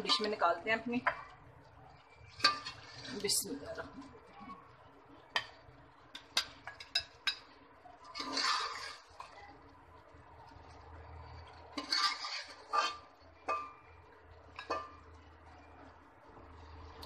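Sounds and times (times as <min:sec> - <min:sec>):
spoon scraping a pot: 0:02.3 - 0:03.4, 0:08.1 - 0:09.4, 0:11.7 - 0:13.8.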